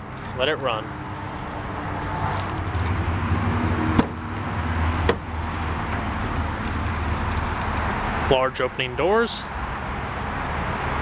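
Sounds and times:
car door clacks: 3.9s - 4.2s.

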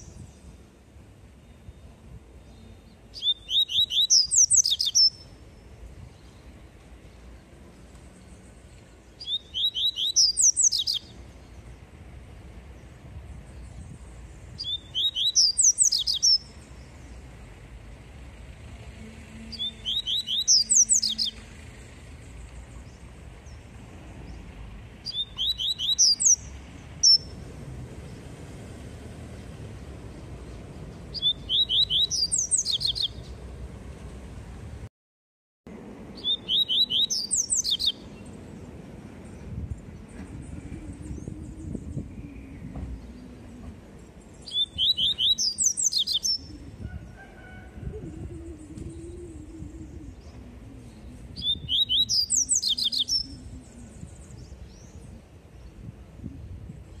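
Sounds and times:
bird singing whistled phrases: 3.2s - 5.2s, 9.2s - 11.1s, 14.6s - 16.5s, 19.5s - 21.4s, 25.1s - 26.4s, 31.2s - 33.2s, 36.2s - 38.0s, 44.5s - 46.6s, 51.0s - 53.6s.

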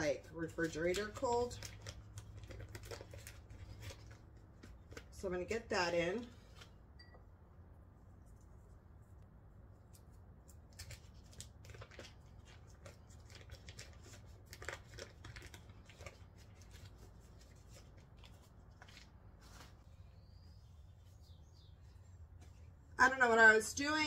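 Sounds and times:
room hum: 0.0s - 24.0s
paper wrapper crinkling: 0.5s - 5.2s, 10.0s - 19.9s.

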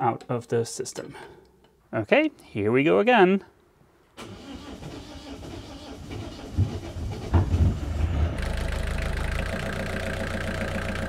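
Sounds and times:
diesel engine cranking and starting: 4.2s - 11.0s
diesel engine idling: 8.2s - 11.0s.

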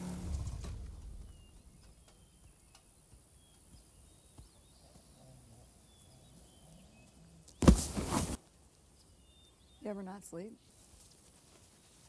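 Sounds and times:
faint bird chirps: 0.7s - 7.8s, 8.9s - 10.8s.

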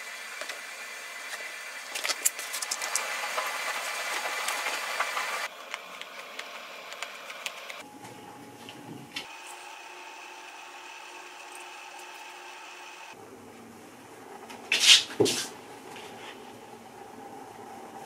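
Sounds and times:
steady hiss: 0.0s - 5.5s.

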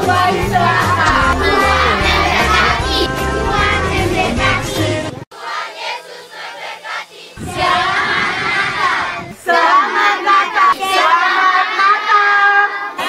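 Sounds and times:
children shouting and singing: 0.0s - 4.8s, 5.4s - 13.0s
music with steady bass: 0.0s - 5.2s.

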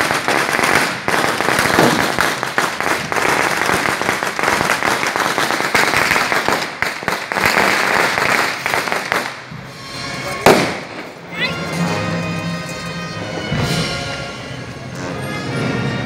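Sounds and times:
firecrackers crackling: 0.0s - 15.6s.

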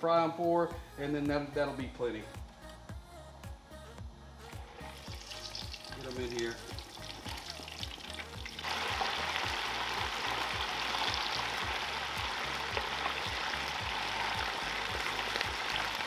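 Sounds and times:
oil sizzling in a deep fryer: 4.9s - 16.0s.

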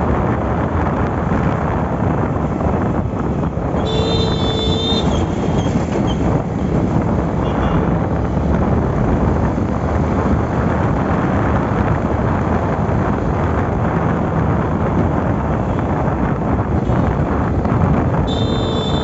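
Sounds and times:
wind buffeting microphone: 0.0s - 19.0s
motorcycle engine: 3.8s - 6.0s, 18.3s - 19.0s.

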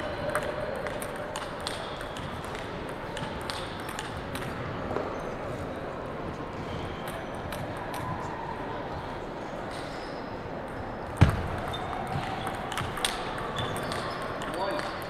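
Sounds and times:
table tennis balls clicking: 0.0s - 4.6s, 10.6s - 15.0s
hall background noise: 0.0s - 15.0s.

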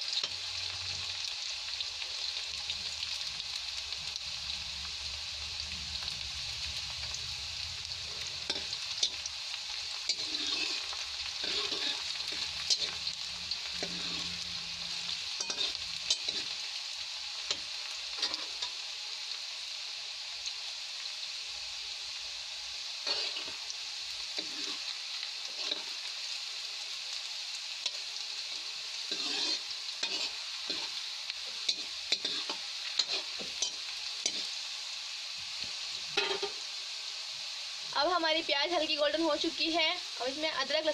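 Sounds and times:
onions sizzling in hot oil: 0.0s - 40.9s
metal ladle scraping pan: 10.1s - 13.0s, 29.1s - 30.9s, 36.2s - 36.6s.

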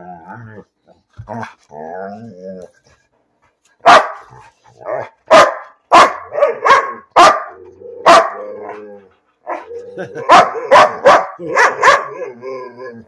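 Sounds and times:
dog barking: 3.8s - 4.3s, 5.0s - 8.8s, 10.2s - 12.3s
dog whining: 7.5s - 11.0s.

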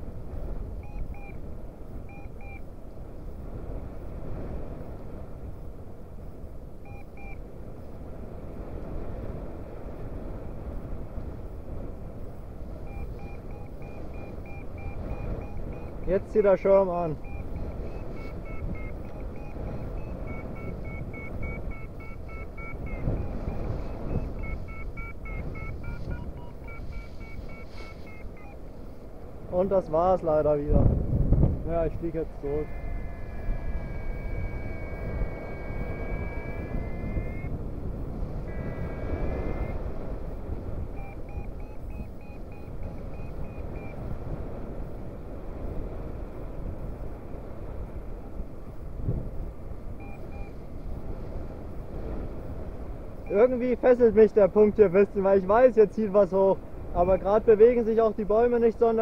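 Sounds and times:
wind rushing on microphone: 0.0s - 59.0s
variometer rapid short beeps: 0.8s - 1.4s, 2.0s - 2.7s, 6.8s - 7.4s, 12.8s - 28.6s, 32.0s - 37.6s, 38.4s - 40.1s, 40.8s - 44.1s, 50.0s - 50.6s, 53.2s - 53.5s
short high tone: 32.2s - 37.5s.

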